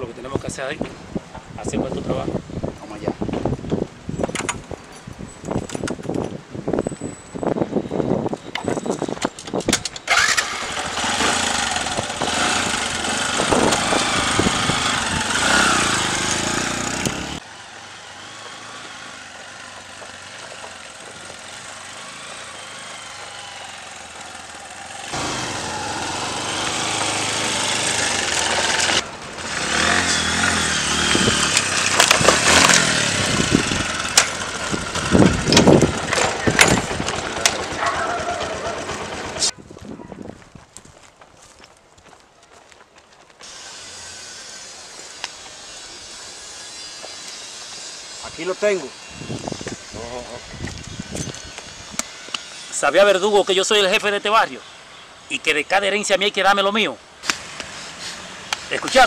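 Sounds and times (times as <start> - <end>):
small motorcycle engine: 10.0 - 39.6, 43.4 - 55.1.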